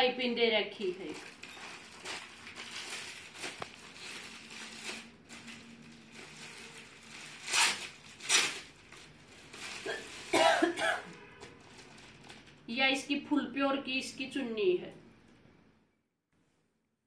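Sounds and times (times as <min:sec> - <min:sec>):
fabric rustling and crinkling: 0:00.7 - 0:12.7.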